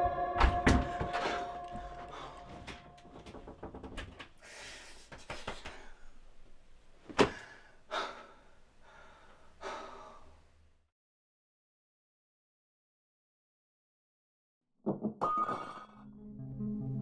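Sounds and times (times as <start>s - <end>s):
man gasping and breathing hard: 4.4s - 6.2s, 7.2s - 10.4s.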